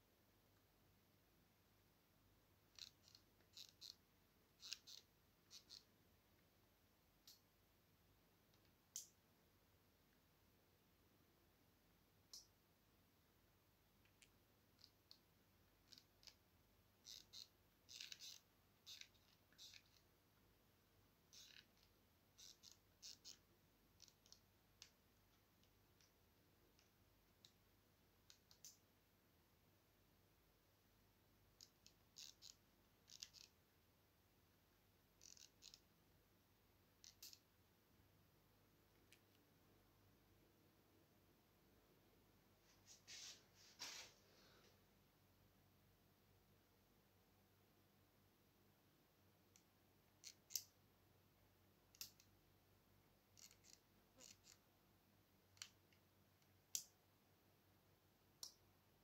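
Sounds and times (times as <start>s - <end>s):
faint sharp clicks: 12.3s - 12.5s.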